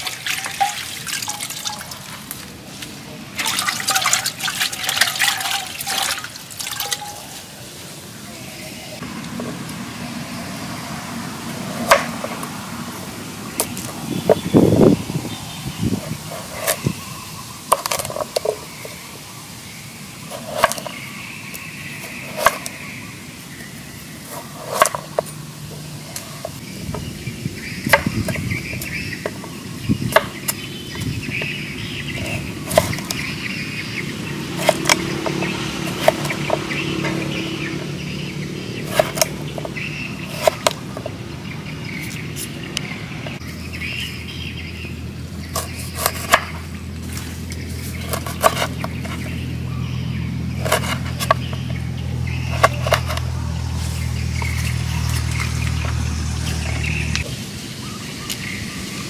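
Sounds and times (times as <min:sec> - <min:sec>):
knife chopping on wooden board: 0:34.6 - 0:37.8, 0:38.8 - 0:41.1, 0:48.0 - 0:49.3, 0:50.6 - 0:51.6.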